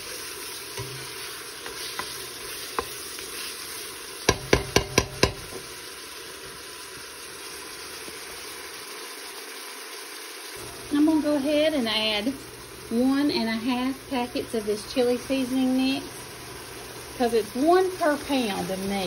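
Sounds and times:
meat sizzling in a pot: 0:00.0 - 0:19.0
spoon knocking on pot: 0:00.8 - 0:01.2, 0:04.3 - 0:05.7.

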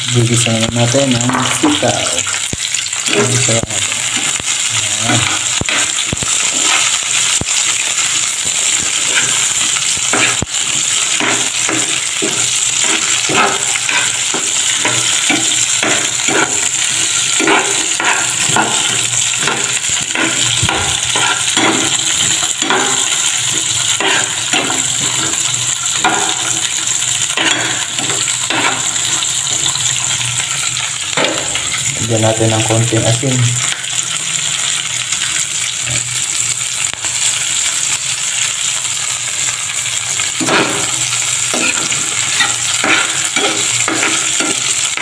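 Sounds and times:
vegetables sizzling in hot oil: 0:00.0 - 0:45.0
metal spatula scraping a pan: 0:01.3 - 0:07.8, 0:08.4 - 0:31.9, 0:40.4 - 0:45.0.

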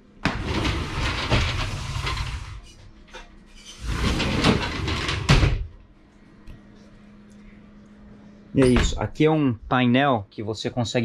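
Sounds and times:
sliding shower door rolling: 0:00.2 - 0:02.8, 0:03.6 - 0:05.7.

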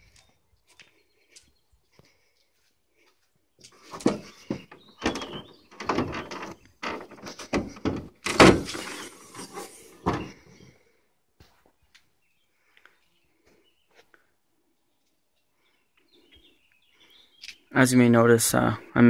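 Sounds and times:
truck hood clunking and rattling: 0:03.8 - 0:10.4.

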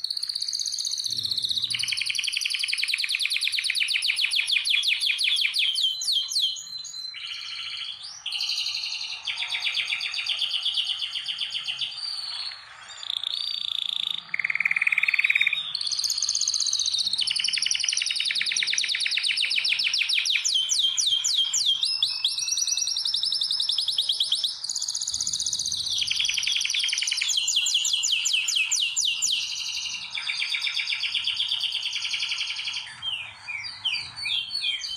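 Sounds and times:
canary singing trills: 0:00.0 - 0:34.9.

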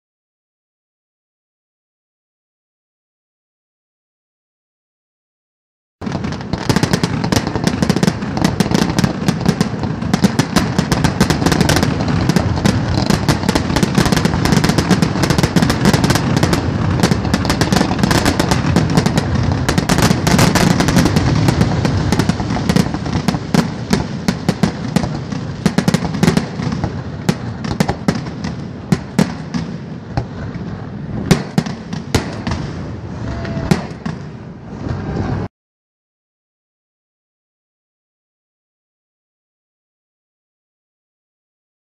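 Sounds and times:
fireworks bursting and crackling: 0:06.0 - 0:35.5.

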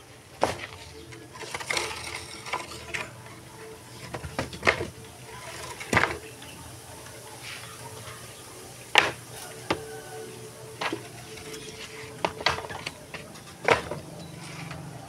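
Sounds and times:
faint steady hum: 0:00.0 - 0:15.0
wooden planks knocking: 0:00.4 - 0:03.1, 0:04.0 - 0:06.3, 0:08.9 - 0:10.0, 0:10.8 - 0:14.7.

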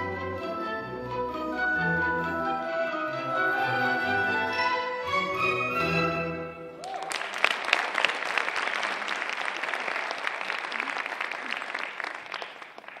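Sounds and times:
recorded orchestral music: 0:00.0 - 0:06.9
audience applauding: 0:06.8 - 0:13.0.

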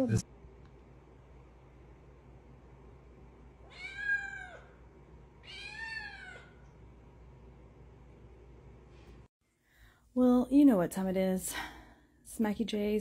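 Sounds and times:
kitten meowing: 0:03.7 - 0:04.7, 0:05.4 - 0:06.5.

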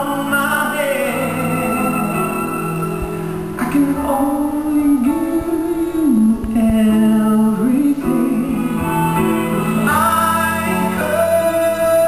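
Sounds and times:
live band accompaniment: 0:00.0 - 0:12.0
man singing long notes: 0:00.0 - 0:12.0.

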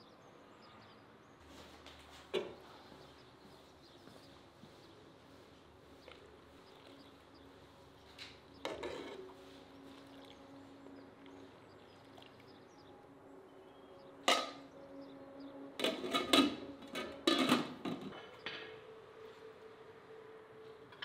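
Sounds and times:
kitchen knocks and clinks: 0:15.8 - 0:18.8.

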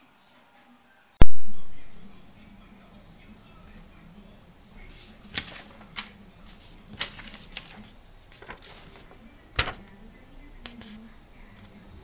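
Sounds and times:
paper sheets rustling: 0:04.7 - 0:12.0.

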